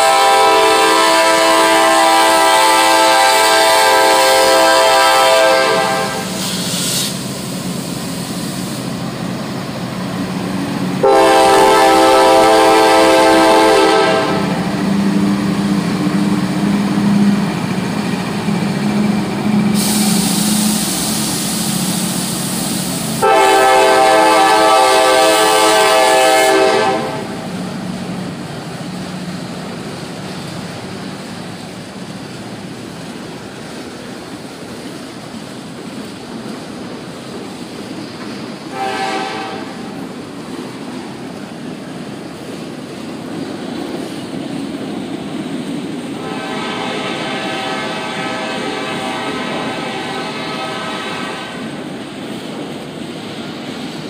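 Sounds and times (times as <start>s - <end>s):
locomotive horn blasts: 0.0s - 6.5s, 11.0s - 14.7s, 23.2s - 27.5s, 38.7s - 39.9s, 46.2s - 51.8s
freight train rumbling: 0.0s - 54.0s.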